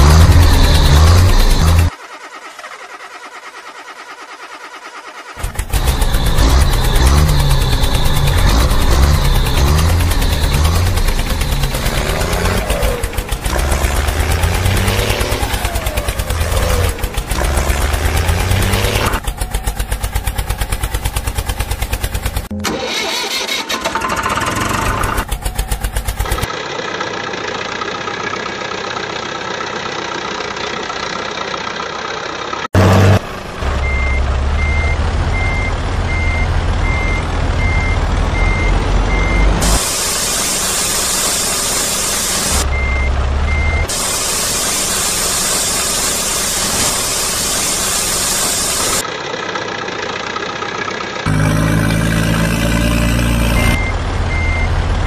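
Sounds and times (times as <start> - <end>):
heavy truck engine running: 0.0 - 55.0
high reversing beeps: 33.8 - 39.8, 42.6 - 43.9, 51.6 - 54.8.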